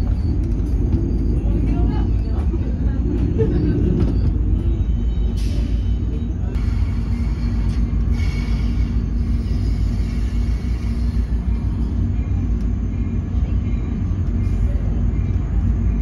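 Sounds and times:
train rumble from inside coach: 0.0 - 16.0.

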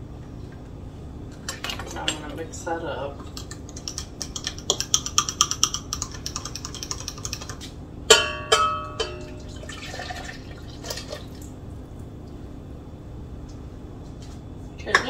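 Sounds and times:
utensil clinking against glass: 8.1 - 9.8
liquid pouring into metal bowl: 8.5 - 11.6.

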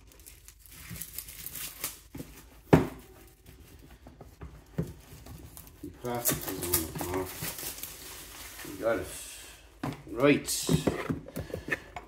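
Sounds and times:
packaging rustling and taps: 4.0 - 7.9.

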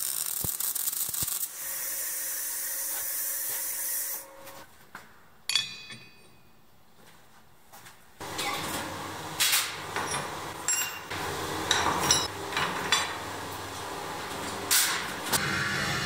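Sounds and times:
furnace hum: 0.0 - 16.0
metal tools clinking: 5.5 - 6.6, 10.0 - 11.1.

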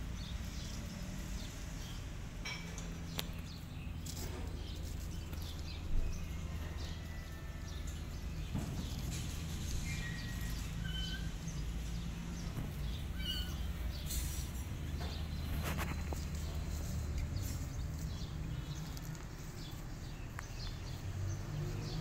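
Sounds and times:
high bird chirps: 13.0 - 14.3.

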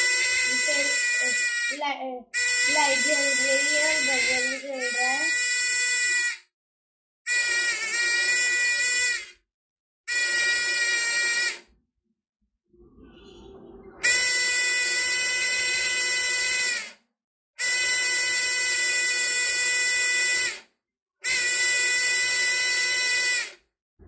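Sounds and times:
electronic buzzer high buzzing tone: 0.0 - 6.5, 7.3 - 9.4, 10.1 - 11.6, 14.1 - 16.9, 17.6 - 20.6, 21.2 - 23.6.

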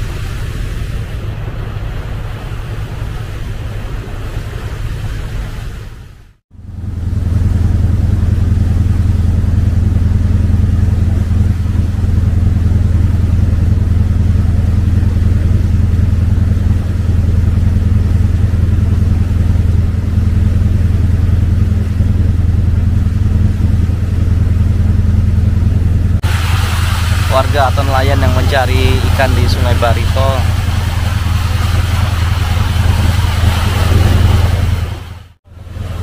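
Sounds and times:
boat engine droning: 0.0 - 36.0.

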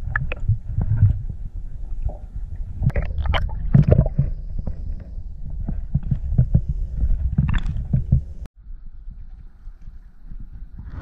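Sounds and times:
underwater knocks and clicks: 0.0 - 8.5
muffled underwater rumble: 0.0 - 11.0.

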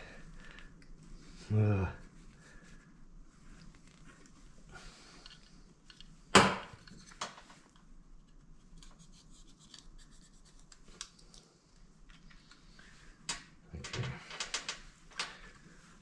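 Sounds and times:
wires scratching and rustling: 2.0 - 6.2, 6.8 - 12.8, 13.7 - 16.0.

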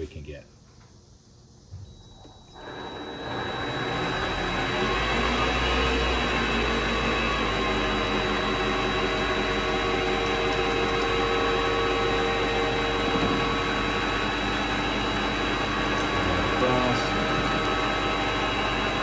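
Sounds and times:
lathe running with high whine: 1.9 - 19.0.

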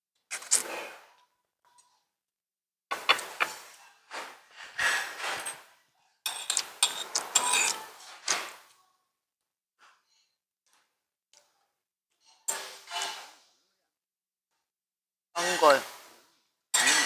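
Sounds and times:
metal spoons clicking on bowls: 6.3 - 7.9
slurping soup: 16.8 - 17.0.

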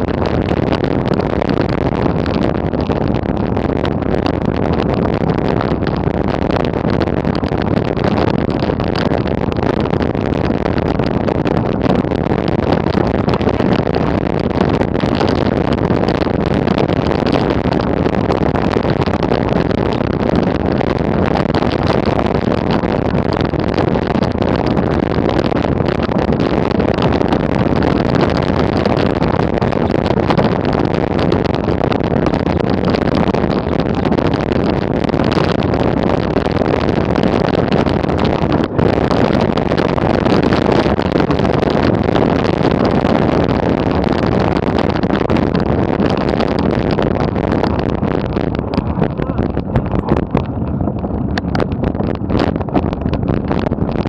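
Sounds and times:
wind rumble on microphone: 0.0 - 54.0.

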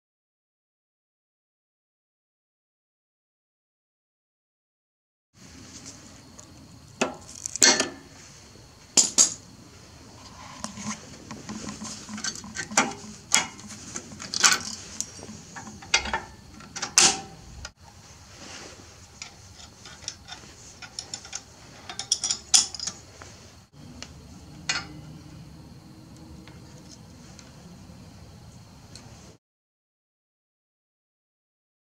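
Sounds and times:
metal tools clinking: 10.4 - 17.6, 19.0 - 23.2.

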